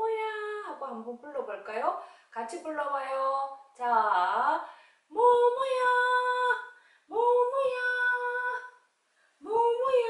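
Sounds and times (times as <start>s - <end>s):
woman calling in sing-song: 3.2s - 8.8s, 9.4s - 10.0s.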